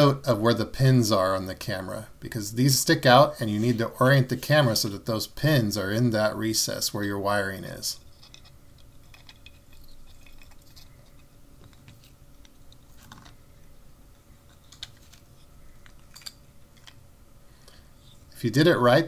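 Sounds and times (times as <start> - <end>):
small plastic clicks and scratches: 8.1 - 13.4, 14.4 - 17.0.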